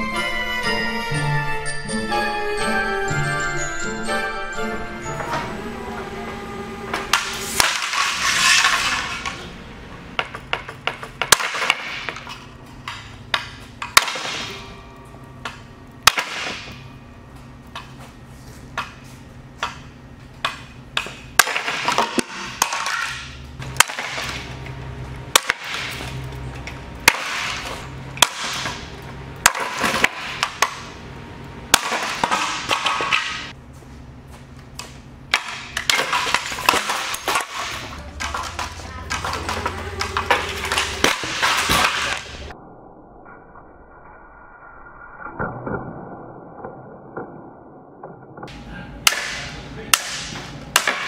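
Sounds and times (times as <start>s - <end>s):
ceiling fan low hum: 0.0s - 42.6s, 48.5s - 51.0s.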